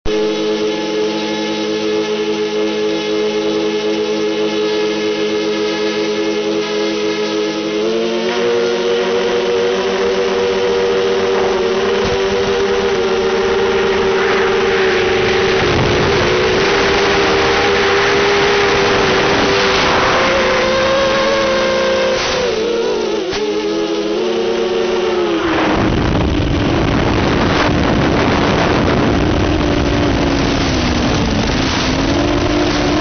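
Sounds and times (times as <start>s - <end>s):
drone motors whining: 0.1s - 33.0s
air rushing: 10.8s - 23.8s.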